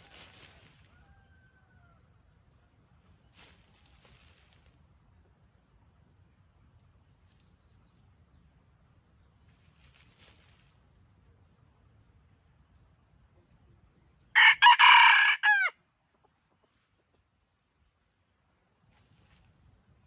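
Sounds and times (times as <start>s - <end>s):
rustling in dry leaves: 0.0s - 1.2s, 3.1s - 4.8s, 9.5s - 10.9s.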